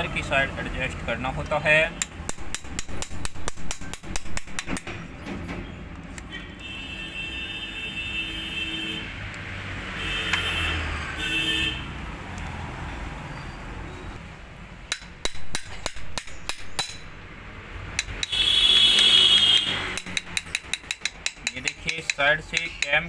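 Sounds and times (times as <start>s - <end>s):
hammer tapping metal: 2.0s - 5.2s, 14.9s - 17.2s, 17.9s - 18.4s, 19.9s - 23.0s.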